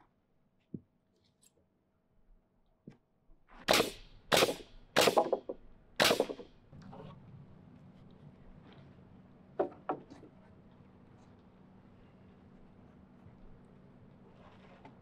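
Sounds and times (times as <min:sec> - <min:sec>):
nail gun firing: 0:03.6 - 0:06.5.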